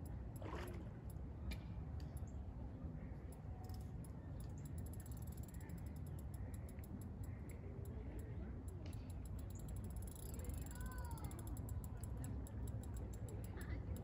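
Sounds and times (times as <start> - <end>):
fishing reel clicks: 3.2 - 14.0.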